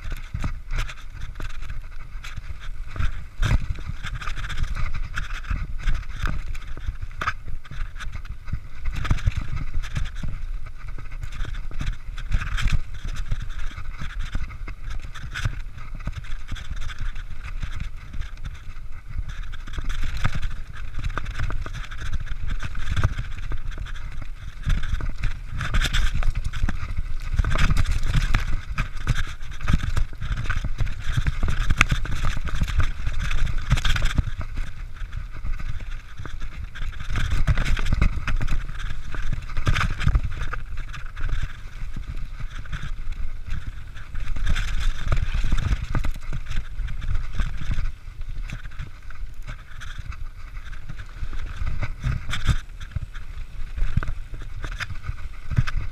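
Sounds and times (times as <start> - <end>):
bike rattling over bumps: 0.0 - 55.9
tyres crunching over loose ground: 0.0 - 55.9
wind rumbling on microphone: 0.0 - 55.9.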